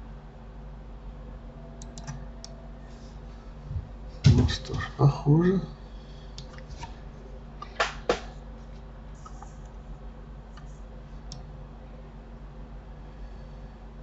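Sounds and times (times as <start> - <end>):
steady low hum: 0.0 - 14.0
computer mouse clicks: 1.8 - 2.6.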